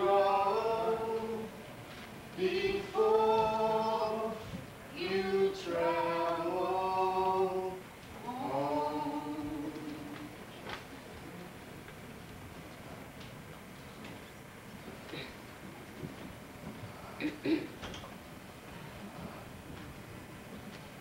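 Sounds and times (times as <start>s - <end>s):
voices singing a cappella: 0.0s - 1.7s, 2.4s - 10.4s.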